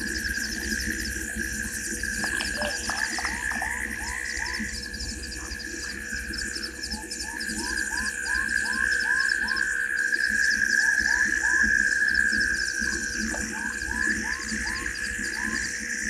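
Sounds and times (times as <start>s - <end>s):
rising-and-falling frog call: 2.2s - 5.6s.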